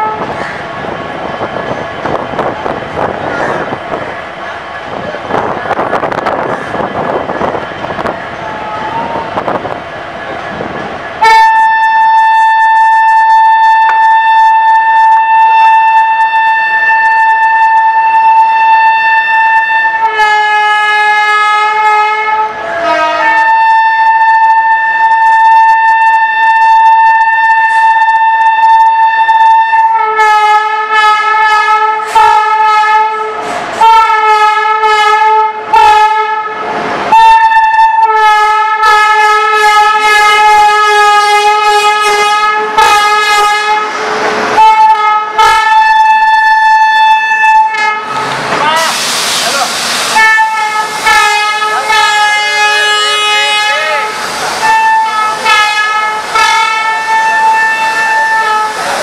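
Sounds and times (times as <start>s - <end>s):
locomotive air horn: 0.0s - 0.4s, 11.2s - 49.0s, 50.1s - 59.0s.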